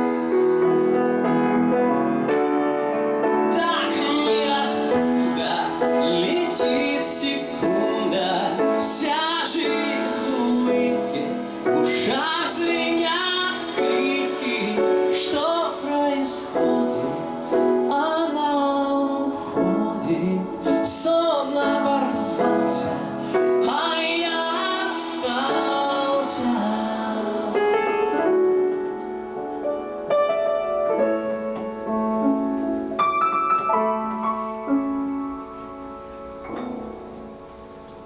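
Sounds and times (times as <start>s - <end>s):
piano chords: 0.0s - 38.0s
man singing: 3.2s - 28.3s.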